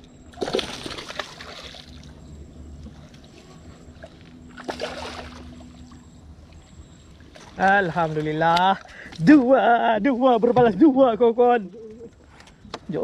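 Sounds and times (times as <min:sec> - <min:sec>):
low steady hum: 0:00.0 - 0:13.0
fish splashing in water: 0:00.3 - 0:02.2, 0:04.0 - 0:06.0.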